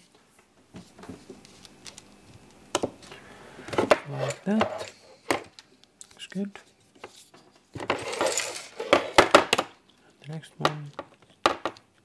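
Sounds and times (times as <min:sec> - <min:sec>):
parts and tools clinking on workbench: 0:03.8 - 0:05.5, 0:07.8 - 0:09.6.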